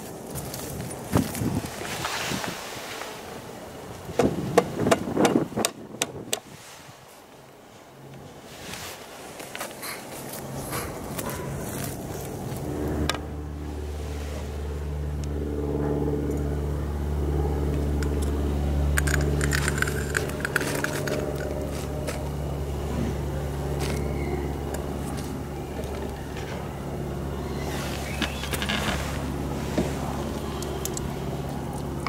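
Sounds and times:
crackling and scraping: 0:08.5 - 0:13.2, 0:17.8 - 0:26.7, 0:27.4 - 0:32.0
low motor hum: 0:10.2 - 0:32.0.

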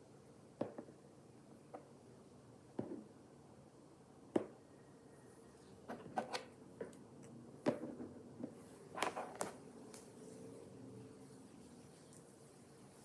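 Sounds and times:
plastic toys knocking on a table: 0:02.8 - 0:03.1, 0:07.6 - 0:09.2.

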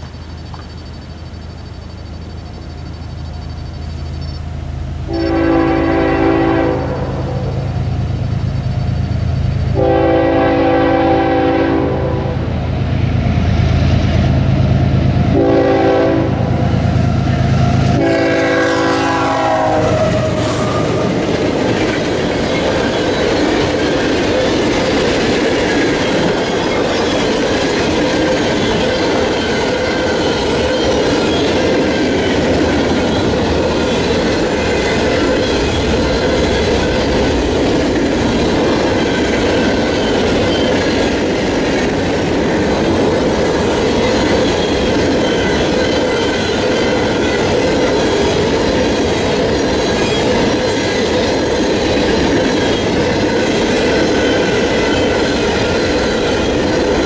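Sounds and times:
locomotive engine drone: 0:00.0 - 0:57.0
steel wheels clattering on rail: 0:00.0 - 0:57.0
locomotive horn blasts: 0:05.1 - 0:07.6, 0:09.8 - 0:12.5, 0:15.3 - 0:16.6, 0:17.8 - 0:21.1.

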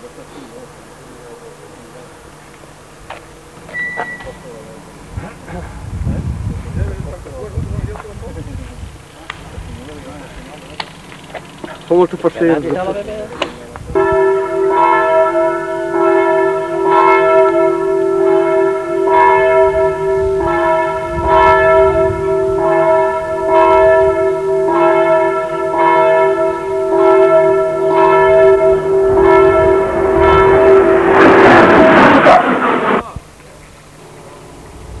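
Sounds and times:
church bell tolling: 0:13.9 - 0:32.6.

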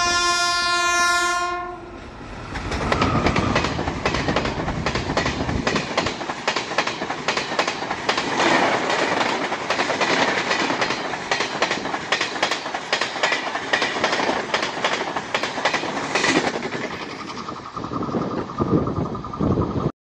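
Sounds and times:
train rumbling past: 0:00.0 - 0:19.9
wheels clacking over rail joints: 0:02.4 - 0:19.4.

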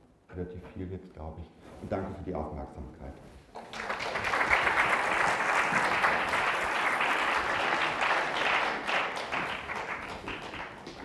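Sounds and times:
audience applause: 0:03.6 - 0:11.0.

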